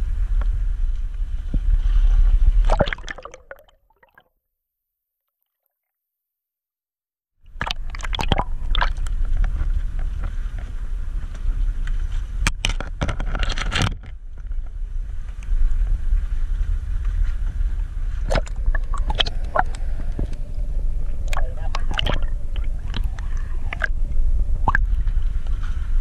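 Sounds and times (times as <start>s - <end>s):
water splashes: 1.8s - 4.2s, 7.5s - 10.8s, 18.1s - 26.0s
boat engine rumbling: 7.5s - 26.0s.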